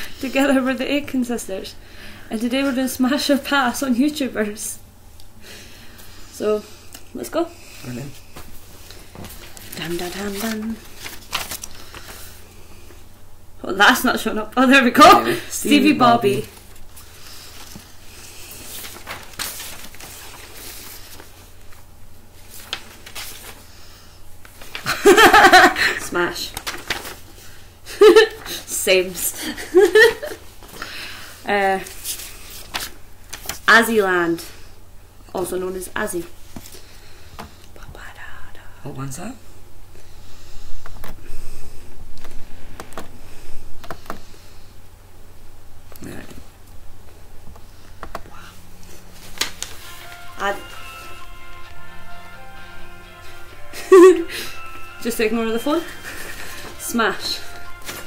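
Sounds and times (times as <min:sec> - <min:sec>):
low steady hum: 0:00.0 - 0:58.0
faint rustling and shuffling: 0:05.8 - 0:13.1, 0:16.2 - 0:25.4, 0:26.2 - 0:33.7, 0:39.8 - 0:51.7.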